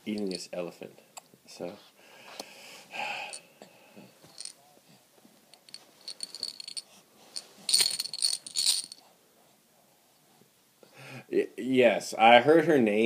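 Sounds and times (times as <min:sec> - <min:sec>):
plastic toy rattle shaking: 0:05.6 - 0:09.0.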